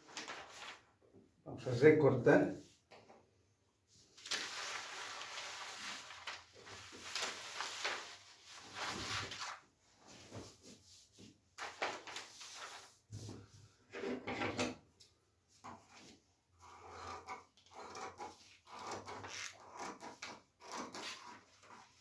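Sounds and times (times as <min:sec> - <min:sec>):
paper rustling and sliding on table: 0:00.0 - 0:00.9, 0:03.9 - 0:13.8.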